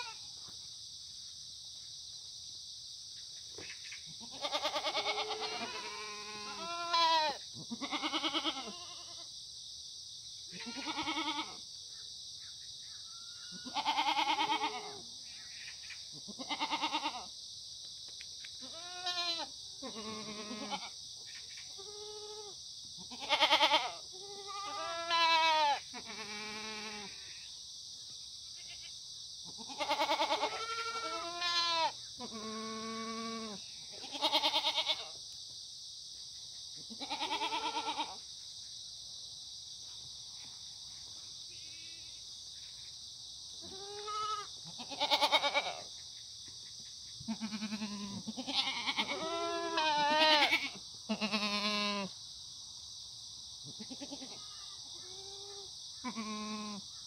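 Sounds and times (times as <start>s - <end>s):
goats bleating: 4.2s - 9.2s, 10.6s - 11.6s, 13.6s - 15.0s, 18.7s - 20.9s, 23.1s - 27.1s, 29.6s - 35.1s, 37.0s - 38.2s, 43.7s - 45.8s, 47.3s - 52.0s, 56.0s - 56.7s.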